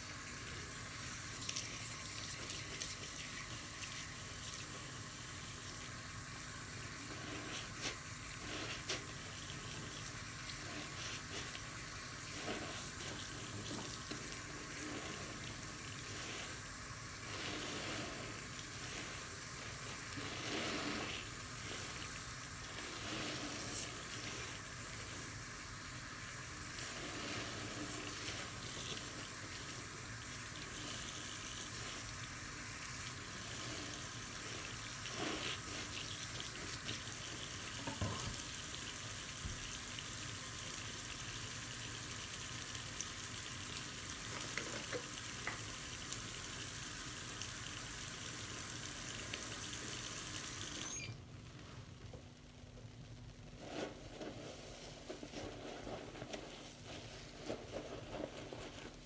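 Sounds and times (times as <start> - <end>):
tap water running into sink: 0.0 - 50.9
sponge squelching: 7.0 - 25.4, 26.8 - 32.2, 33.2 - 37.8.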